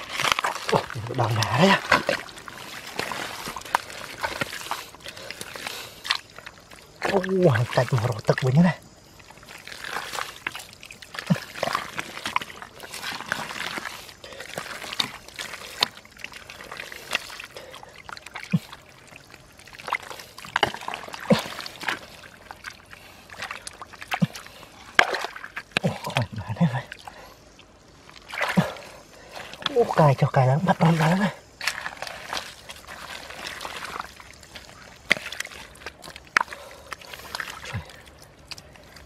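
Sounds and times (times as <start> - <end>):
mud squelching and water splashing: 0.0 - 39.0.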